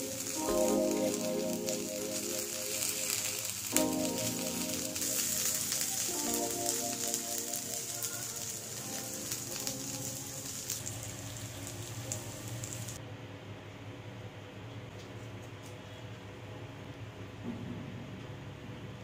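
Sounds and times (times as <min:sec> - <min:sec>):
soft background music: 0:00.0 - 0:13.0
vegetables sizzling on grill pan: 0:00.0 - 0:13.0.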